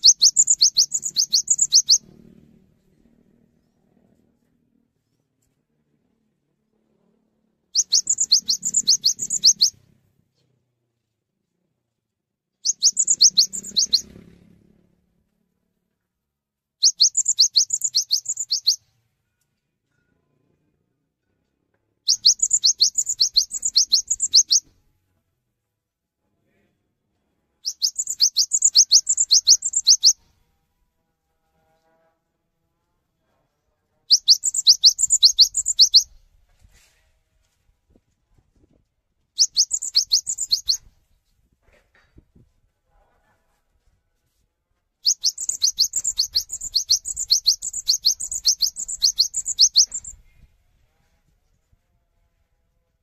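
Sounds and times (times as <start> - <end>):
bird trilling chirps: 0.0 - 2.2, 7.7 - 9.8, 12.6 - 14.2, 16.8 - 18.8, 22.1 - 24.7, 27.6 - 30.2, 34.1 - 36.2, 39.4 - 40.9, 45.0 - 50.3.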